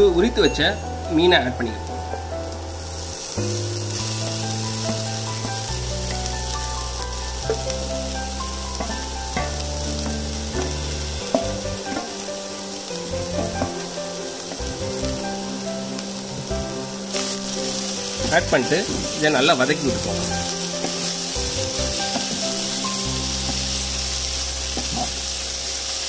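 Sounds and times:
fish sizzling in hot oil: 0.0 - 26.0.

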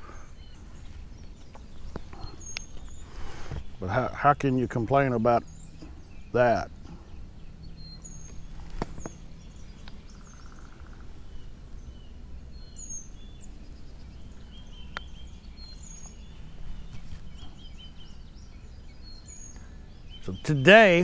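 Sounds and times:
birds chirping and whistling: 0.0 - 21.0
buzzy bird trill: 7.5 - 21.0.

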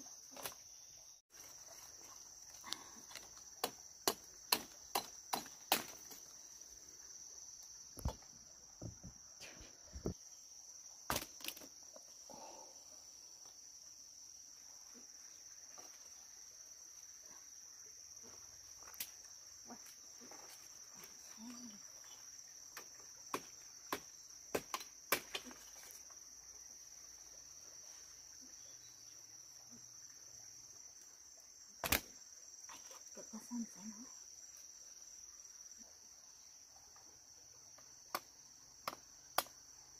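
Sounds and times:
branches snapping: 3.1 - 6.3, 11.1 - 11.7, 31.8 - 32.1.

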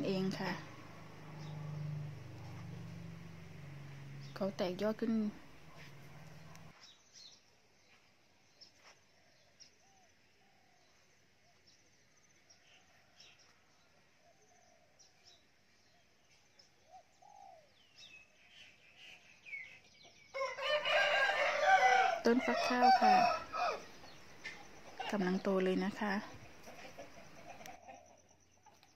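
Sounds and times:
soft cooing bird calls: 12.5 - 20.2, 26.3 - 28.9
rooster crowing: 20.3 - 24.2.

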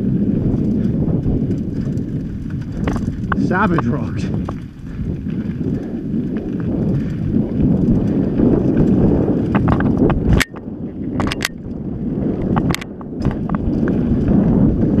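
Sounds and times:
bike clicking and rattling: 0.0 - 15.0
tyres rumbling on dirt trail: 0.0 - 15.0
wind rushing over microphone: 0.0 - 15.0.

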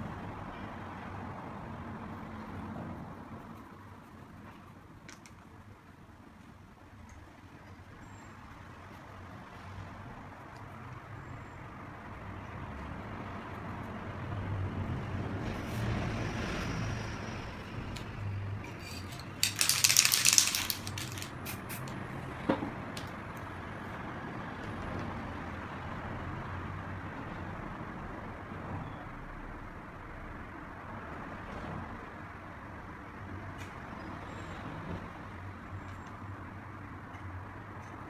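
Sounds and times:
spray can hissing: 18.9 - 22.0.

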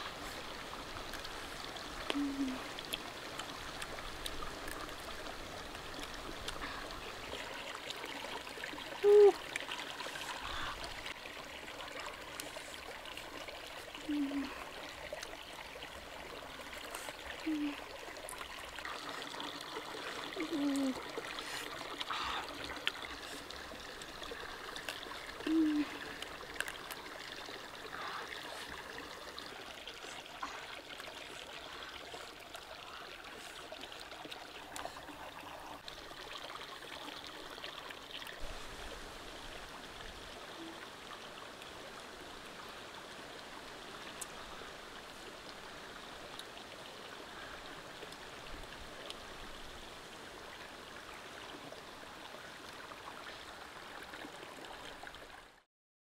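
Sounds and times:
water trickling: 0.0 - 55.7.

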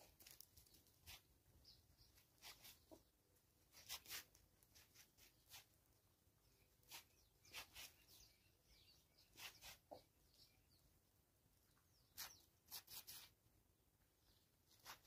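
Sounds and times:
faint high bird calls: 11.8 - 13.3.

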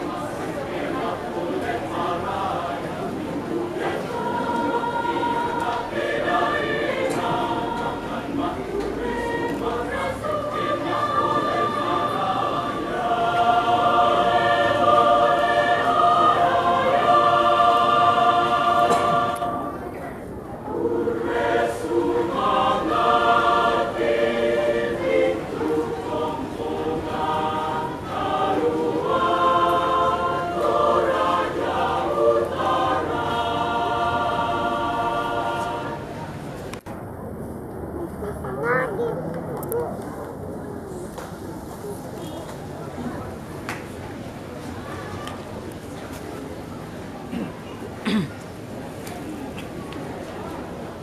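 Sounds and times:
mixed choir singing: 0.0 - 36.8.

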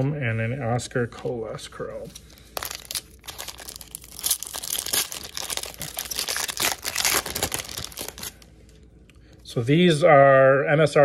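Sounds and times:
foil wrapper crinkling and tearing: 2.3 - 8.5.

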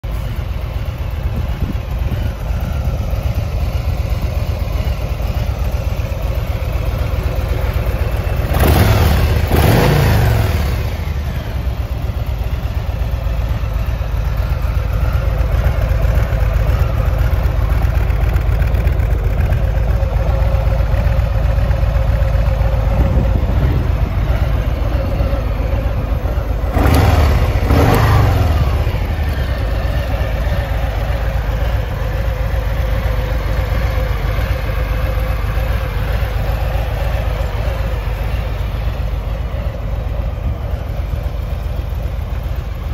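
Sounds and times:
motorcycle engine idling: 0.0 - 42.9.

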